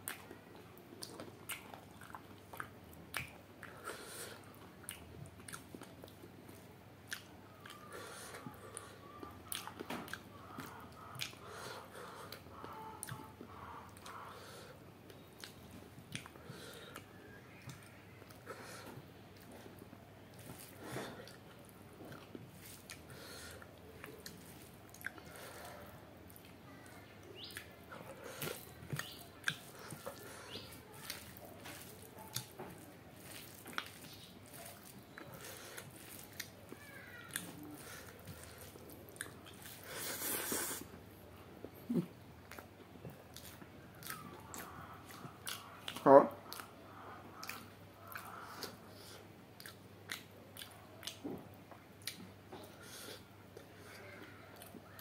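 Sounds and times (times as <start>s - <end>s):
wet chewing and lip smacking: 0.0s - 41.0s, 41.6s - 55.0s
fingers squelching rice: 22.2s - 40.9s.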